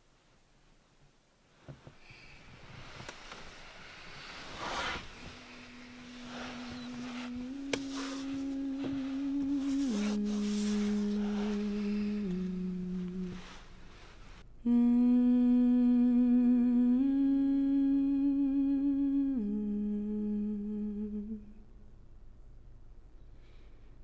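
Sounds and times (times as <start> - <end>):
person humming: 4.6 - 14.0, 14.6 - 21.5.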